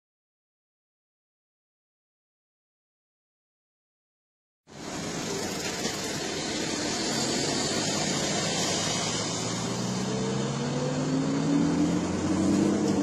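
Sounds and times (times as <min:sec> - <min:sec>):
car engine hum: 0:04.7 - 0:13.0.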